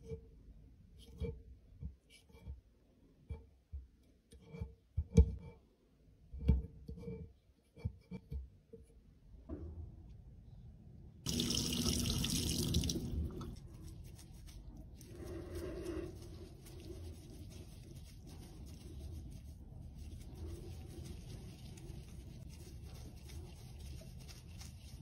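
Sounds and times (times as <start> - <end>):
tap water running into sink: 11.3 - 13.6.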